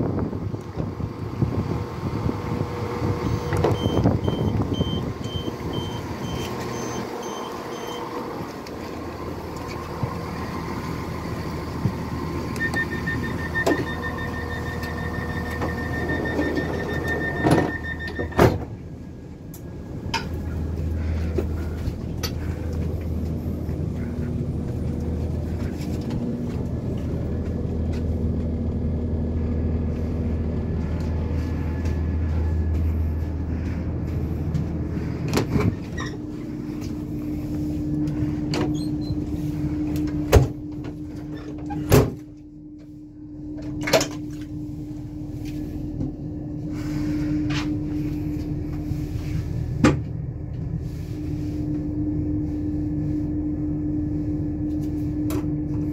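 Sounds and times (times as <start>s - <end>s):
diesel engine humming: 0.0s - 55.9s
train door warning beeps: 3.2s - 8.2s, 12.5s - 18.6s.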